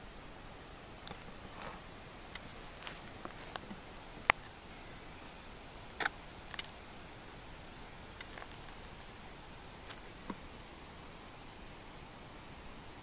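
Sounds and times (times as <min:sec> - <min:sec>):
background hiss: 0:00.0 - 0:13.0
rhinestones peeling and tapping: 0:01.1 - 0:04.6, 0:08.1 - 0:09.2, 0:09.8 - 0:10.4.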